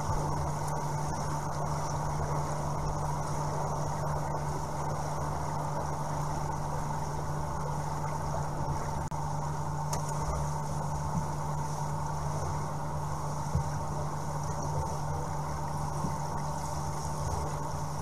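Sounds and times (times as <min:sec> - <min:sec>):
underwater pump hum: 0:00.0 - 0:18.0
small click: 0:09.9 - 0:10.2.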